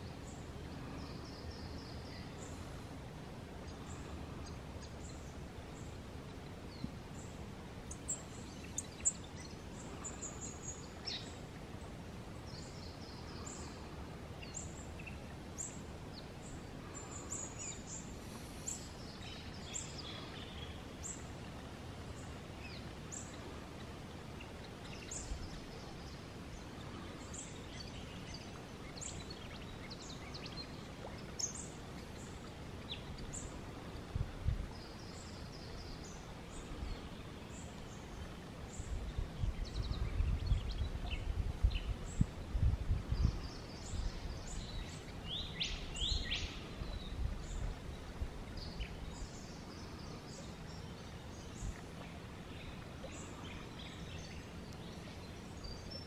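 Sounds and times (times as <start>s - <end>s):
birds chirping: 3.6s - 34.1s
lower falling bird calls: 12.4s - 34.1s.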